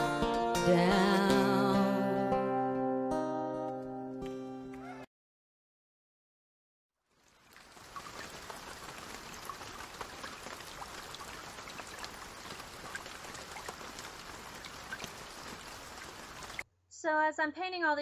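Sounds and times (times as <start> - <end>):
hiss of running water: 7.4 - 16.6
faint drip-like ticks: 7.5 - 16.6.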